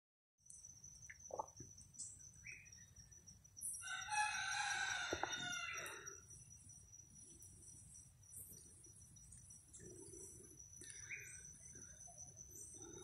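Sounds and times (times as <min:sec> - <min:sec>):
rooster crowing: 0:03.8 - 0:06.2.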